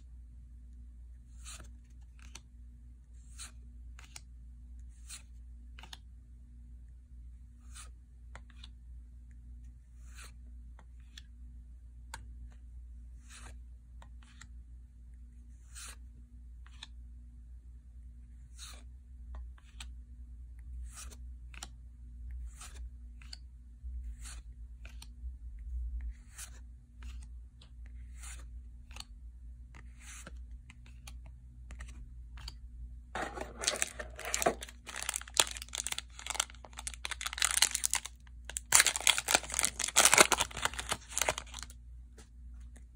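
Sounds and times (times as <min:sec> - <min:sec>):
foil pack crinkling: 0:33.2 - 0:41.7.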